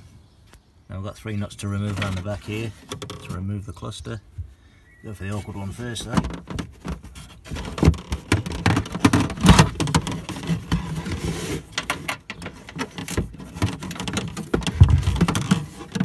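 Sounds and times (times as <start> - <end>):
handling knocks: 5.6 - 16.0.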